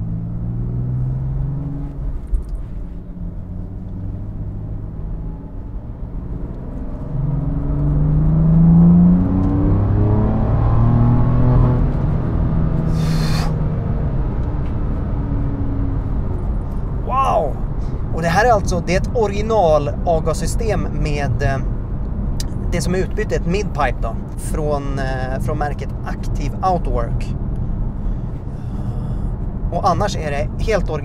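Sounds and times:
car engine revving: 0.0s - 18.8s
short hiss: 13.0s - 13.6s.

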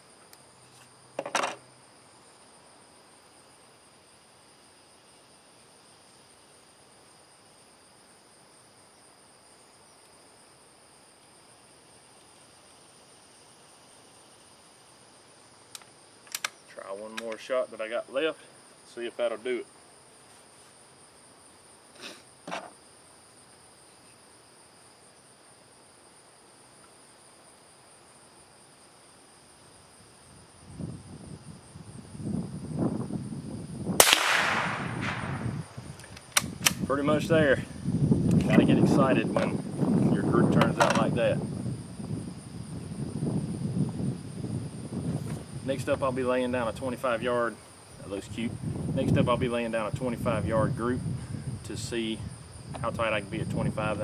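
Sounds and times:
insects chirring: 0.0s - 54.0s
low background hiss: 0.0s - 54.0s
soft knocks or rustles: 22.4s - 22.8s.

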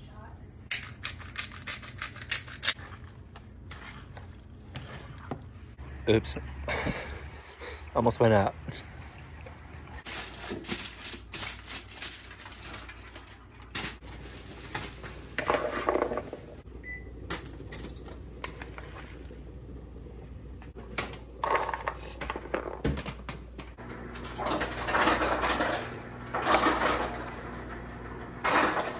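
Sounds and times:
foil crinkling: 10.0s - 15.4s
vegetables dropped into foil: 10.1s - 16.4s.

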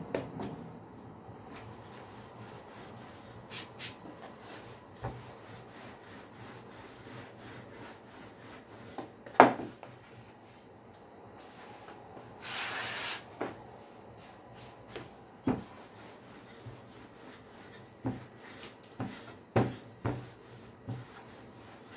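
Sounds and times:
rolling pin rolling dough: 1.5s - 10.3s, 11.8s - 21.9s.

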